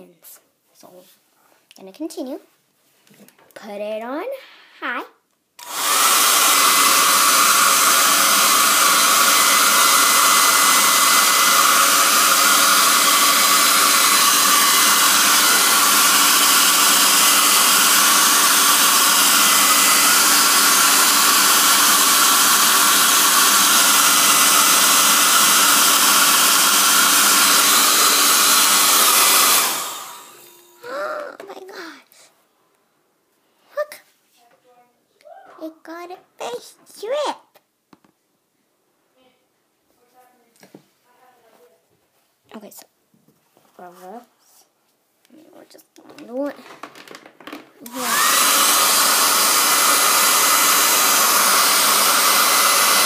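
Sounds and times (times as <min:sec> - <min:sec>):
hair dryer blowing air: 0:05.6 - 0:31.3, 0:47.8 - 0:53.0.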